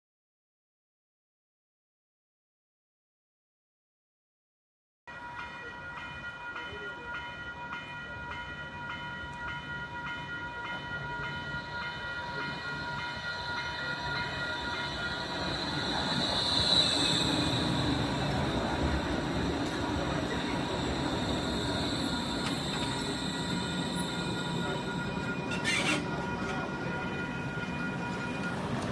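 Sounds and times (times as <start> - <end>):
level-crossing warning bell: 5.1 - 28.9
train running noise: 5.2 - 28.9
high squeal of train wheels: 11.6 - 28.9.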